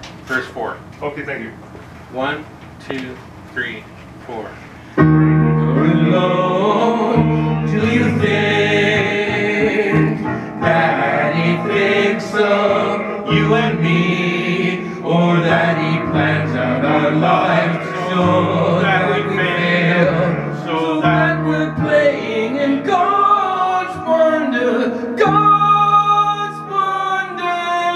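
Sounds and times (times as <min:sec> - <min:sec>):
electric keyboard: 0:04.9 - 0:27.9
group of people singing: 0:05.6 - 0:27.9.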